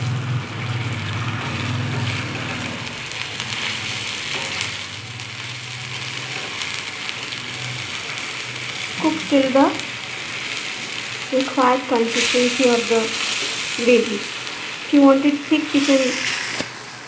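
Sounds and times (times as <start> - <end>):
gravy sizzling and bubbling: 0.0 - 17.0.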